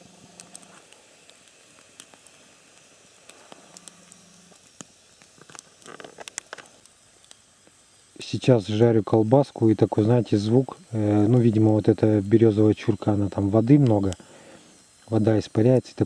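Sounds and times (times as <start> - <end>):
campfire embers crackling: 0.0 - 16.0.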